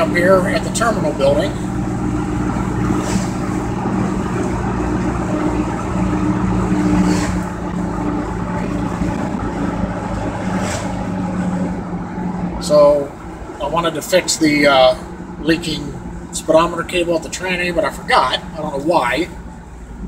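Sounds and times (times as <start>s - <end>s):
truck engine cruising: 0.0s - 20.0s
brief rush of passing noise: 10.4s - 11.2s.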